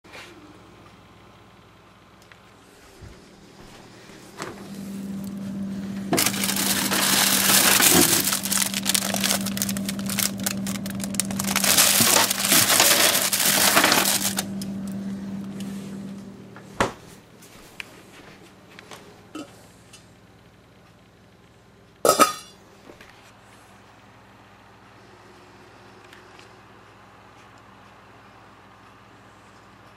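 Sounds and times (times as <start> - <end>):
steady low hum: 0.3 - 22.8
plastic wrappers crinkling: 6.1 - 15.0.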